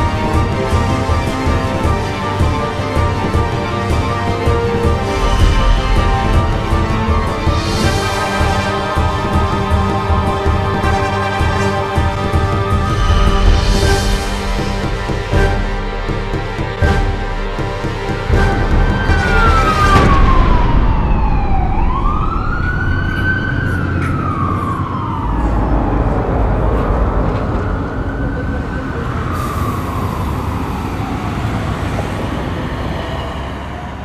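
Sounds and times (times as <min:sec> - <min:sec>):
siren wailing: 0:00.0 - 0:34.0
low rumble: 0:03.2 - 0:29.3.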